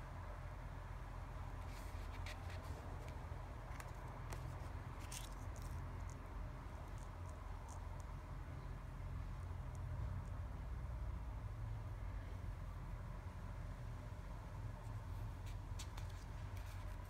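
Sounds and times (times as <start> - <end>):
paper rustling: 1.6 - 5.8, 15.2 - 17.0.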